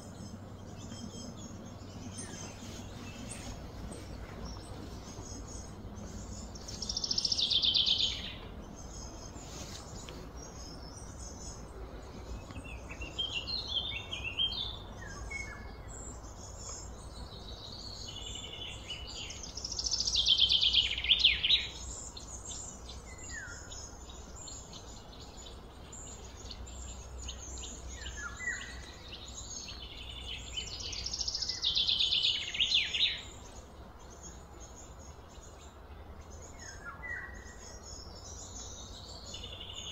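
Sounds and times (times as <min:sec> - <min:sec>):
bird chirps: 0:00.0 - 0:39.9
low background hum: 0:00.0 - 0:39.9.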